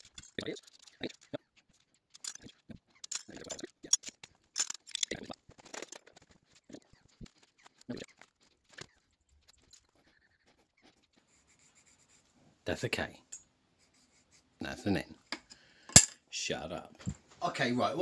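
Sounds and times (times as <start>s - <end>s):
pencil scratching on paper: 6.1s - 12.4s, 13.8s - 15.3s.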